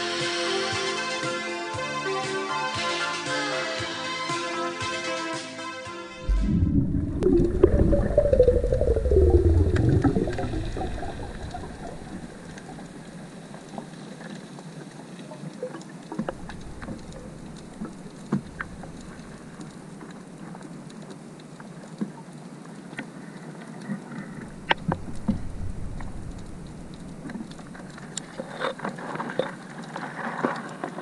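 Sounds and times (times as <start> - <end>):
background music: 0.0 - 8.0
sharp underwater clicks: 6.3 - 30.9
underwater crackle: 6.3 - 31.0.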